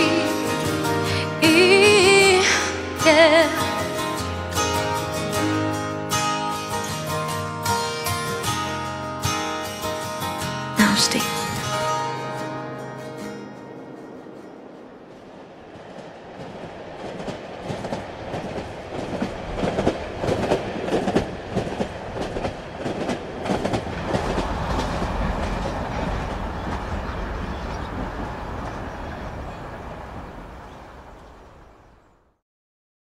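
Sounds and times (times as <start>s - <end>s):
clattering rumbling noise: 13.1s - 31.2s.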